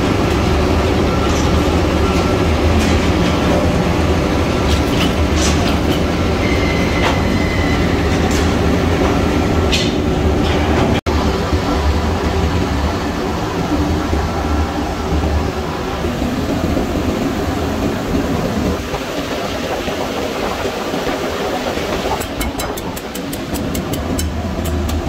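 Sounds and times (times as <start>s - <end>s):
machinery humming: 0.0s - 25.0s
machine squeal: 1.0s - 2.7s, 5.9s - 8.3s.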